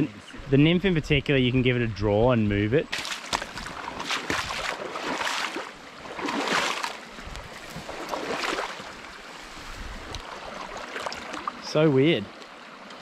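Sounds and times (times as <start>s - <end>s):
creek water splashing: 2.8s - 13.0s.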